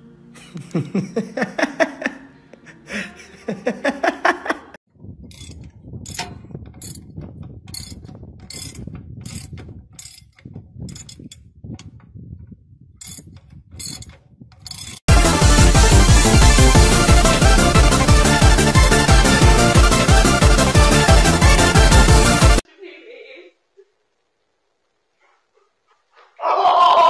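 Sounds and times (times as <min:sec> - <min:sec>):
low rumble: 0:04.9 - 0:13.7
spanner metallic clicks and creaks: 0:05.3 - 0:15.1.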